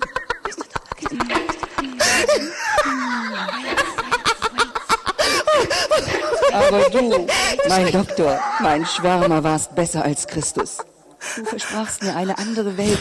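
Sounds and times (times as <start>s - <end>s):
person making giggling sounds: 0.0s - 8.8s.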